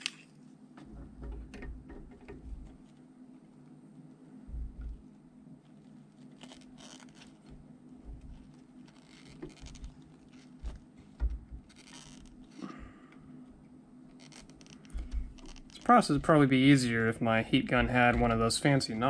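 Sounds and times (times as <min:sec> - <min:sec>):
handling bumps: 0:04.5 - 0:05.1, 0:06.3 - 0:13.6, 0:14.2 - 0:19.0.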